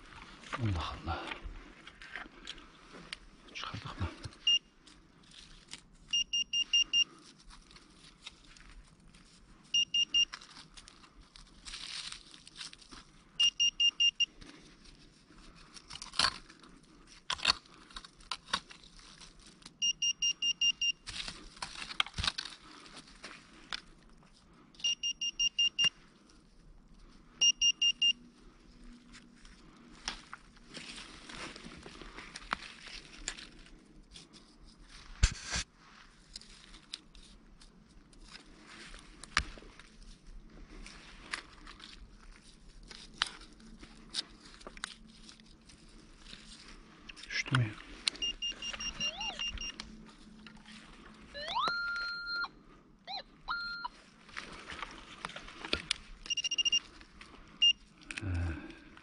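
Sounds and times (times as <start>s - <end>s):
digging in soil: 0.0s - 52.4s, 53.8s - 59.0s
metal detector beeping: 4.3s - 4.7s, 6.1s - 7.2s, 9.7s - 10.4s, 13.4s - 14.4s, 19.8s - 21.1s, 24.8s - 26.0s, 27.4s - 28.2s, 48.1s - 49.9s, 51.3s - 54.0s, 56.2s - 56.9s, 57.6s - 57.9s.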